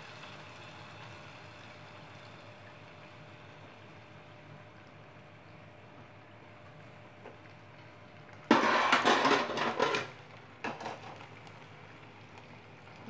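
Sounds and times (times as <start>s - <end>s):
utensils clattering against metal pot: 8.5s - 11.1s.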